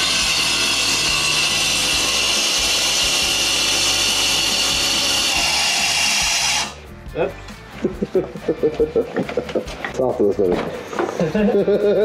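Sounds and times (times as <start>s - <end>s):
power tool grinding: 0.0s - 6.8s.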